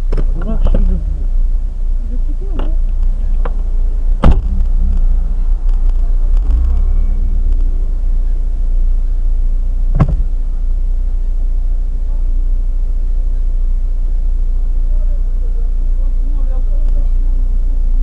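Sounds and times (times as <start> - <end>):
car interior rumble: 0.0 - 18.0
sharp knock: 4.2 - 4.9, 9.9 - 10.3.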